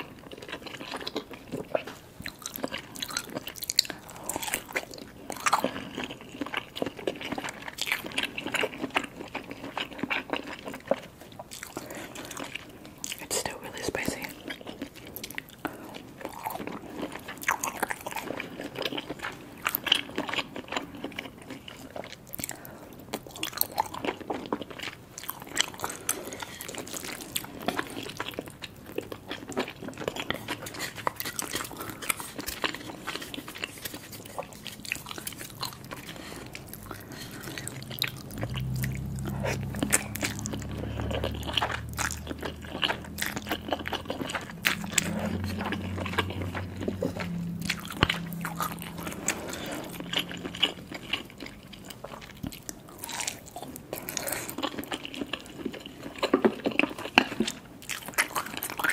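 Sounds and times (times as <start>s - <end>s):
low steady hum: 0.0s - 58.9s
wet chewing and biting: 0.0s - 58.9s
slurping noodles: 25.5s - 52.4s.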